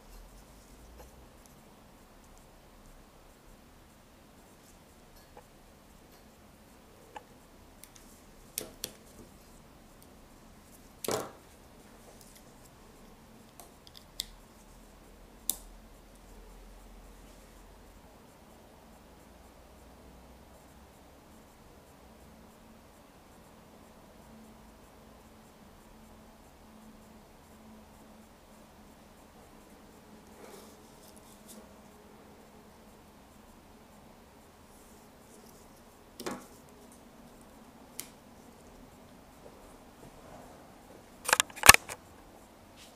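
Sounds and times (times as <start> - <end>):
faint low hum: 0.0 - 42.9
electronics handled on table: 36.2 - 36.6, 41.3 - 42.0.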